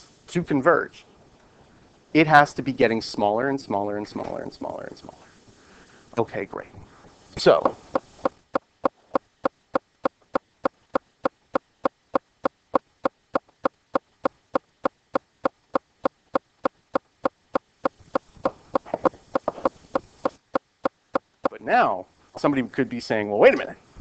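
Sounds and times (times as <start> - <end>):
faint irregular noise: 0.0 - 24.0
steady clicking: 7.5 - 21.6.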